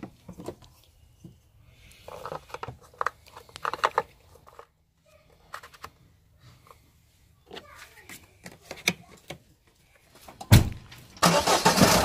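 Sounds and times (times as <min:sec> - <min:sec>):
plastic cap clicking and scraping: 0:01.8 - 0:04.7.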